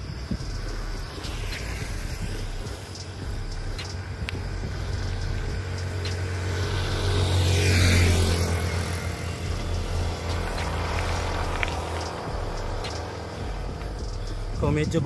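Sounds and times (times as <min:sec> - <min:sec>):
motorcycle engine approaching: 0:00.0 - 0:15.0
steady low rumble: 0:00.0 - 0:15.0.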